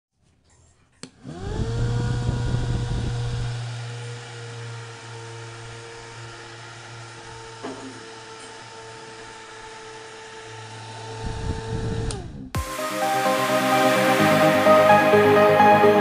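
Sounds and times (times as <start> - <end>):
table fan motor whine and hum: 1.1 - 12.5.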